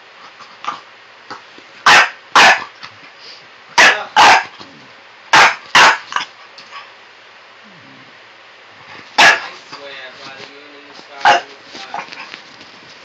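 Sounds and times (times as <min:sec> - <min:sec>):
puppy barking: 0:01.8 - 0:02.8, 0:03.8 - 0:04.6, 0:05.3 - 0:06.3, 0:09.2 - 0:09.6, 0:11.2 - 0:12.2.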